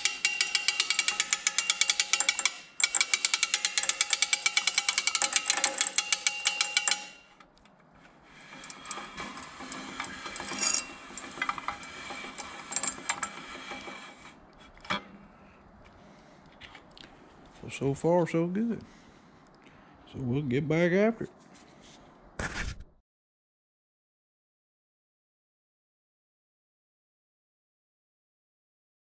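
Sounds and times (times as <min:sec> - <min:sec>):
hand crank ratchet clicking: 0:00.0 - 0:14.4
metal rubbing and scraping: 0:00.0 - 0:15.3.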